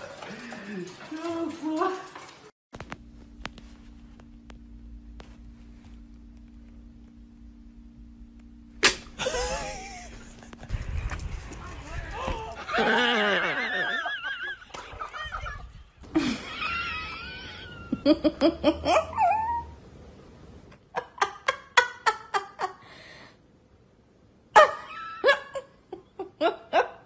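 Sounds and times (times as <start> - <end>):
people laughing: 9.2 - 10.7, 12.1 - 19.1.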